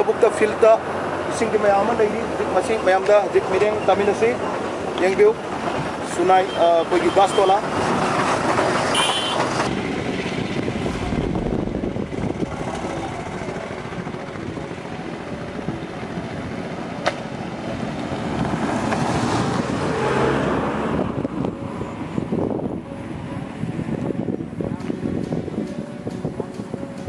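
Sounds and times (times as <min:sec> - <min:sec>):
road traffic: 0:00.0 - 0:27.0
sharp click: 0:24.8 - 0:27.0.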